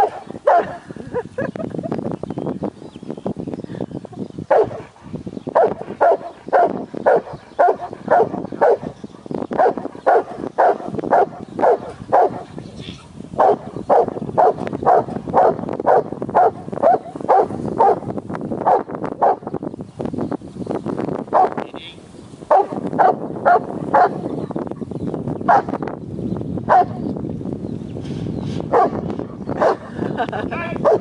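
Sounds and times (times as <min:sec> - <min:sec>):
dog barking: 0:00.0 - 0:00.8, 0:04.5 - 0:04.9, 0:05.6 - 0:08.9, 0:09.6 - 0:12.5, 0:13.4 - 0:18.0, 0:18.6 - 0:19.4, 0:21.3 - 0:21.6, 0:22.5 - 0:24.2, 0:25.5 - 0:25.7, 0:26.7 - 0:27.0, 0:28.7 - 0:29.0, 0:29.6 - 0:29.9.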